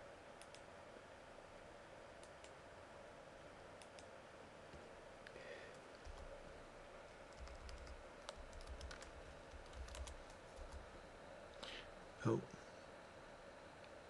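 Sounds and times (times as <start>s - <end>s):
keyboard typing: 5.7s - 6.4s, 7.3s - 10.9s.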